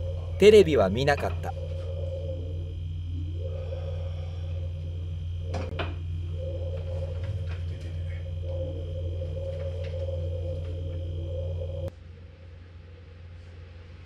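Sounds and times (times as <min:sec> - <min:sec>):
high whine: 0:00.0 - 0:12.6
low machine hum: 0:00.0 - 0:14.0.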